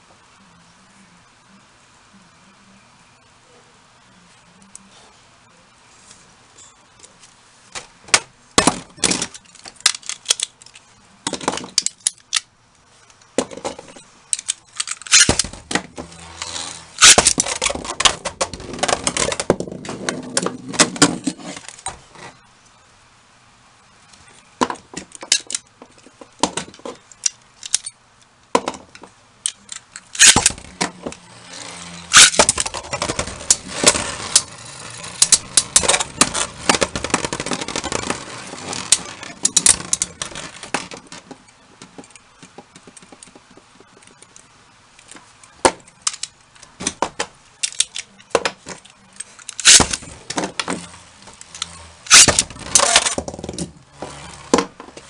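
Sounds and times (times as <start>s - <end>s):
tops scraping against plastic: 13.1s - 22.4s, 28.6s - 44.4s.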